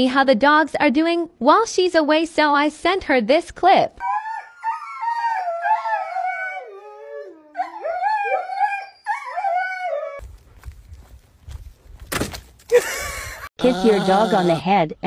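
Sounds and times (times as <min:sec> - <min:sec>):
huskies howling: 0:04.0 - 0:10.2.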